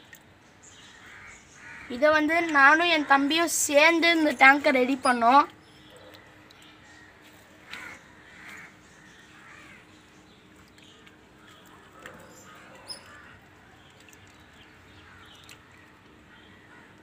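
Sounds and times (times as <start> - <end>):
distant bird calls: 0.4 - 17.0.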